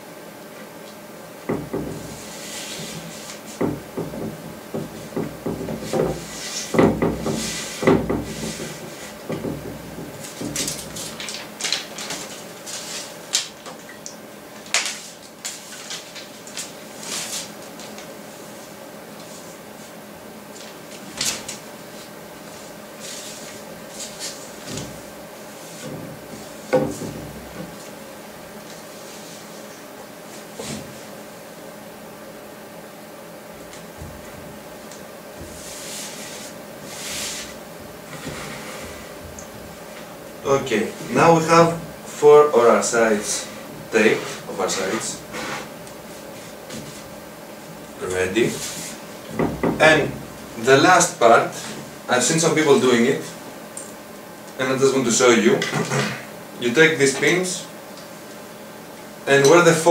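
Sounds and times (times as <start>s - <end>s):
wooden knocks and thumps: 1.5s - 11.2s, 25.8s - 27.8s, 49.3s - 50.3s
hands rubbing tape on paper: 5.8s - 9.1s, 35.5s - 39.0s.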